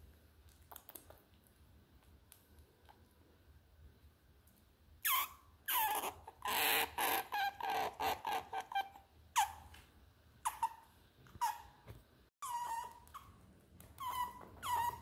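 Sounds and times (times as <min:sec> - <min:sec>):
otter squeaking: 0:12.4 - 0:15.0.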